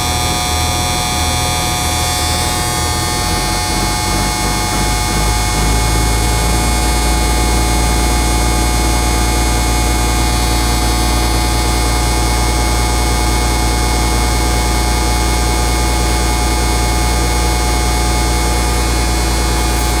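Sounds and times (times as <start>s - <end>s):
diesel truck engine idling: 0.9s - 11.6s.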